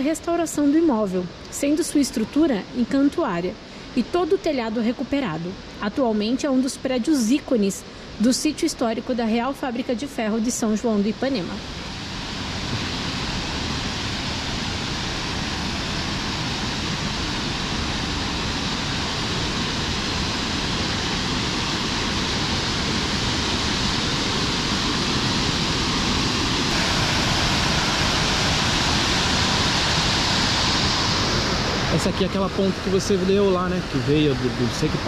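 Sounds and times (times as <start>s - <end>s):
waterfall pouring: 26.7s - 35.0s.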